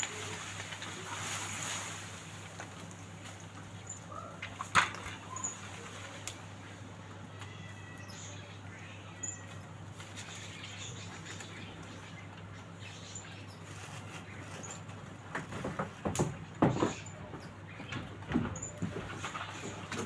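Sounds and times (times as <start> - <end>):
rustles and knocks: 0.0 - 6.6, 13.4 - 20.0
faint high bird chirps: 5.1 - 5.8, 7.3 - 14.8.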